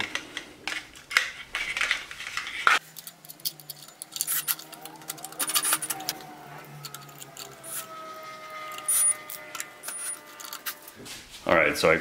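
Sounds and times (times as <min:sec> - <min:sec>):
cordless drill driving screws: 0:04.2 - 0:10.9.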